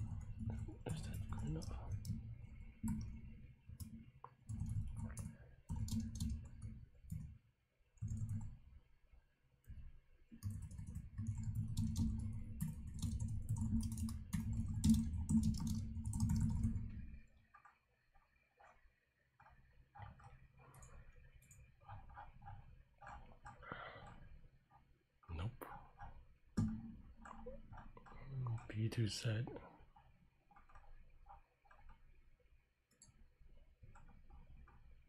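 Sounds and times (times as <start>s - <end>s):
keyboard typing: 3.8s - 7.3s, 8.0s - 8.6s, 10.4s - 17.0s.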